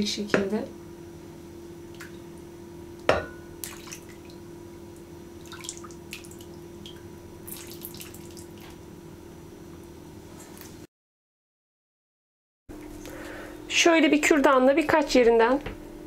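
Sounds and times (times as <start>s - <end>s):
steady low hum: 0.0s - 10.9s, 12.7s - 16.0s
syrup trickling and splashing: 3.6s - 4.4s, 5.4s - 8.8s.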